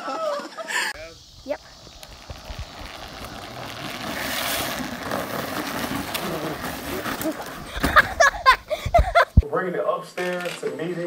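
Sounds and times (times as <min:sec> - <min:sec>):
plastic wheels skidding on asphalt: 0:01.4 - 0:09.4.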